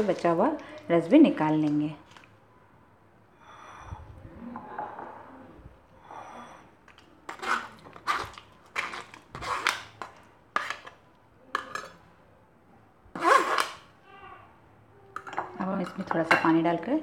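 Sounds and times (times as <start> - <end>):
spoon scraping metal strainer: 7.3 - 10.9.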